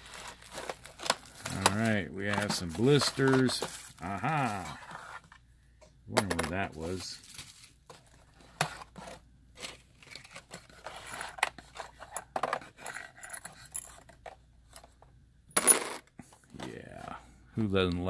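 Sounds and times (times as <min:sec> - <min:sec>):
plastic packs clicking and scraping: 0:00.0 - 0:05.3.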